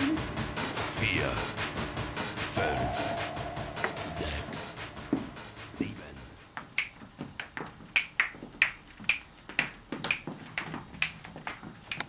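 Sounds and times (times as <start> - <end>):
sharp hand claps: 6.7 - 12.0.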